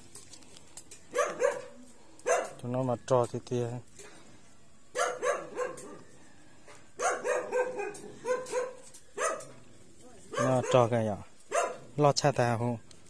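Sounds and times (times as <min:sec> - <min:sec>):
dog barking: 0:01.1 - 0:02.6, 0:04.9 - 0:06.1, 0:06.7 - 0:09.6, 0:10.3 - 0:12.0.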